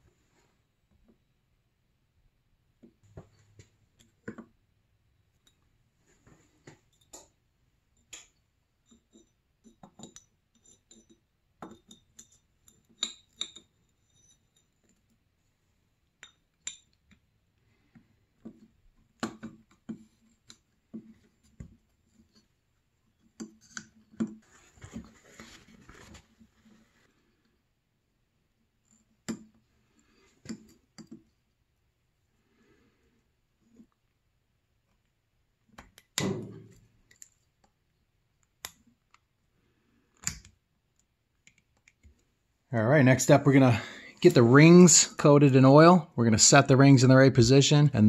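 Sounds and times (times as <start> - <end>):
metallic clicks and clinks: 8.0 - 15.1.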